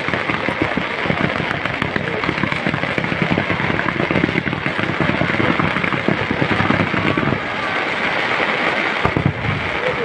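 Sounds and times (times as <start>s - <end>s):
fireworks popping and crackling: 0.0s - 10.0s.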